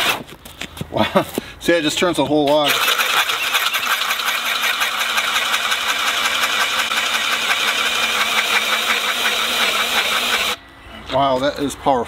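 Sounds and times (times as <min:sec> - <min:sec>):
drill bit chattering in wood: 0:02.5 - 0:10.6
drill motor under load: 0:02.6 - 0:10.6.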